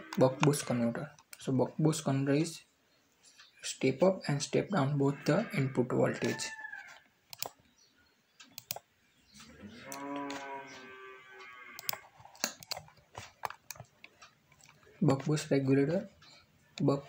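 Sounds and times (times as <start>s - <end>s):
computer clicks: 7.3s - 7.6s, 8.4s - 10.6s, 11.5s - 15.4s.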